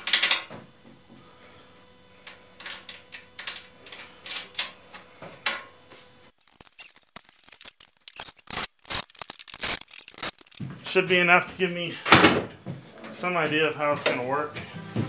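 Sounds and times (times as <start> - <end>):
quick clicks: 6.4 - 10.6.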